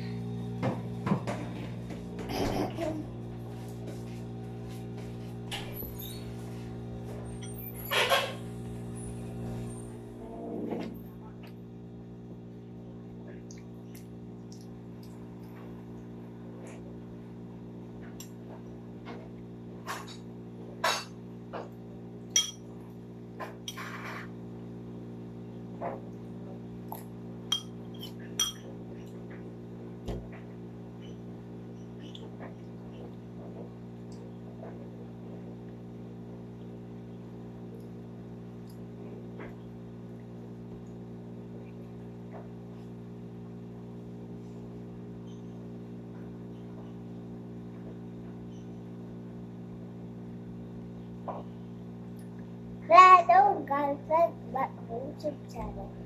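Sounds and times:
low electrical hum: 0:00.0 - 0:56.0
spoon clinking on ceramic bowl: 0:22.4 - 0:22.6, 0:27.5 - 0:28.6.

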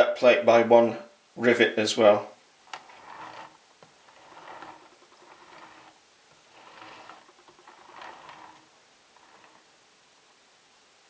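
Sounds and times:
soft rustling and scraping: 0:02.7 - 0:09.8.

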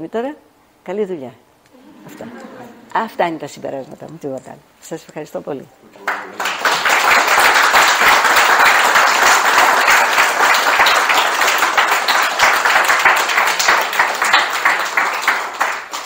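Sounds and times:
audience applauding: 0:01.8 - 0:03.4, 0:06.0 - 0:16.0.

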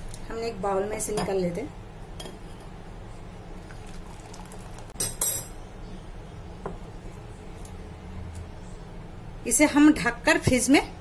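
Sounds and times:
thick custard pouring: 0:03.6 - 0:05.0.

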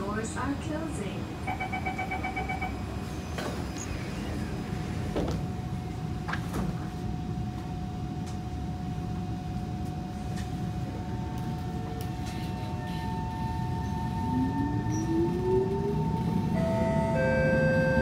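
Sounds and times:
low rumble inside train car: 0:00.0 - 0:18.0
train doors sliding shut: 0:03.1 - 0:05.5, 0:06.2 - 0:06.9.

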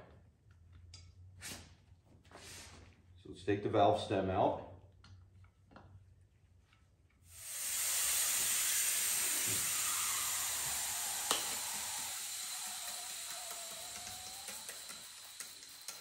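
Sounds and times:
air hissing out of a tire: 0:07.3 - 0:16.0.

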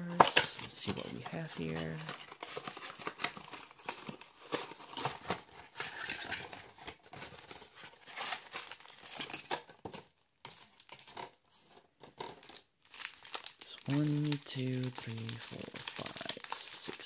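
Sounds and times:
foil card packs crinkling: 0:00.1 - 0:11.2, 0:12.2 - 0:17.0.

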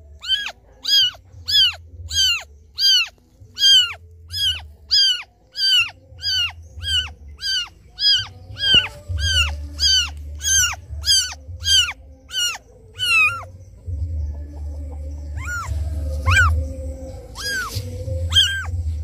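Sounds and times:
kitten mewing: 0:00.2 - 0:13.5, 0:15.4 - 0:15.7, 0:16.3 - 0:16.6, 0:17.4 - 0:18.8
low rumble: 0:06.0 - 0:19.0.

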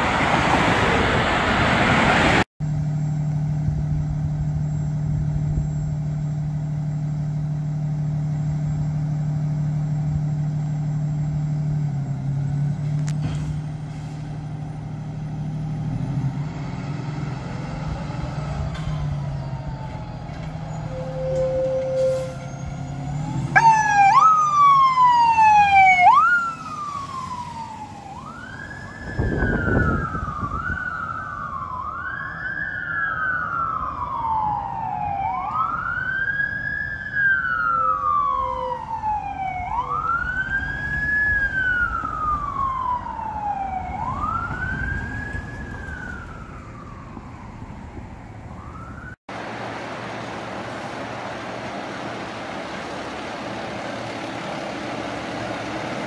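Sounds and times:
fire truck siren wailing: 0:00.0 - 0:49.2
short low horn blast: 0:20.7 - 0:22.8
diesel engine idling: 0:41.9 - 0:56.0.

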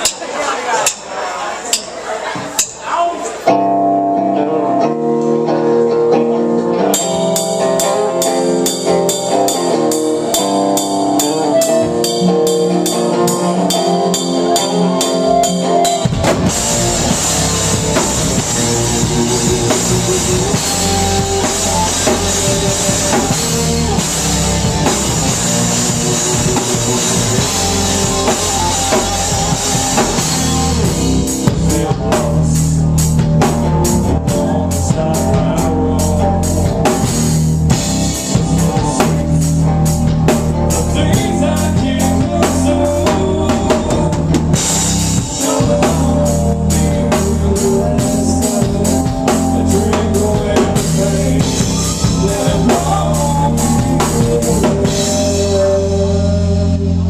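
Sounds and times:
drum kit: 0:01.7 - 0:57.0
bass guitar: 0:03.4 - 0:57.0
electric guitar riff: 0:03.5 - 0:57.0.

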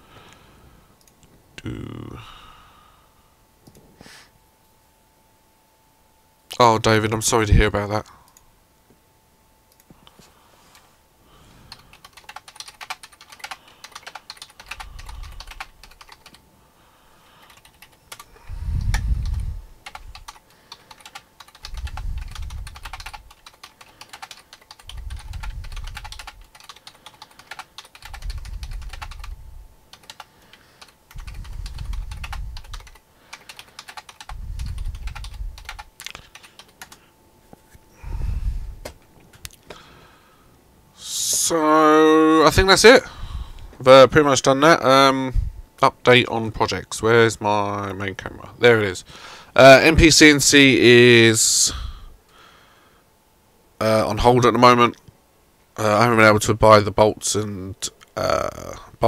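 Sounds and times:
computer keyboard typing: 0:11.7 - 0:16.4, 0:17.4 - 0:37.0.

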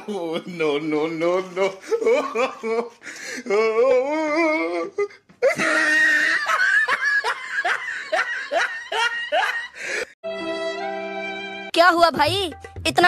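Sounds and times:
person laughing hard: 0:05.4 - 0:10.1.

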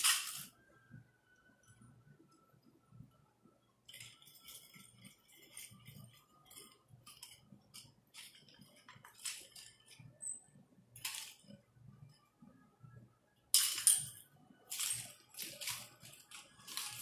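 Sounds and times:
metal chain clinking: 0:13.6 - 0:17.0.

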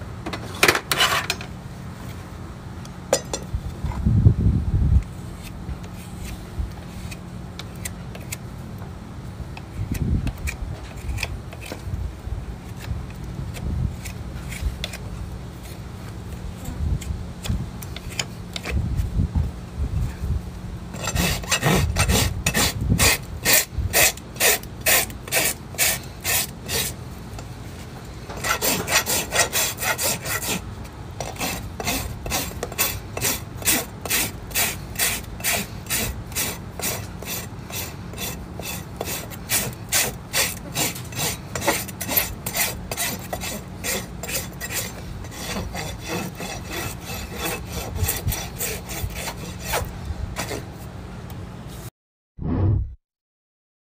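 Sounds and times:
rasp scraping a hoof: 0:00.4 - 0:01.5, 0:05.2 - 0:08.4, 0:09.8 - 0:11.9, 0:12.6 - 0:15.8, 0:17.0 - 0:18.8, 0:20.9 - 0:50.9.

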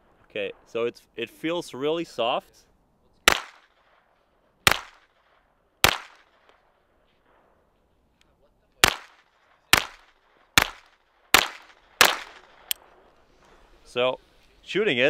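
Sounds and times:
pistol shots with echo: 0:03.2 - 0:07.6, 0:08.8 - 0:13.0.

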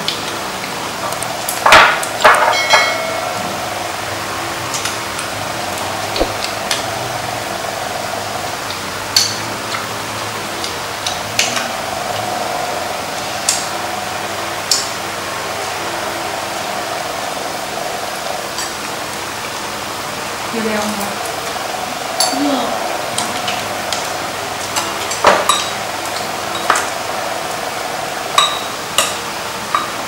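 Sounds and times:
background hum: 0:00.0 - 0:30.0.

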